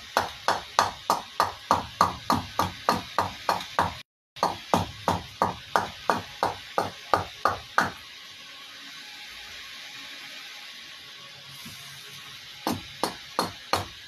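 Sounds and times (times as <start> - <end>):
hatchet chopping wood: 0.0 - 8.0, 12.6 - 14.0.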